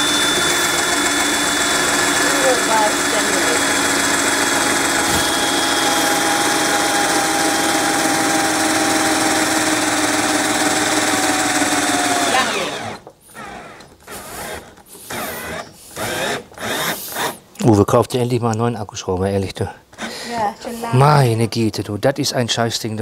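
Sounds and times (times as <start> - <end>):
cordless drill drilling into steel: 0.0 - 17.4.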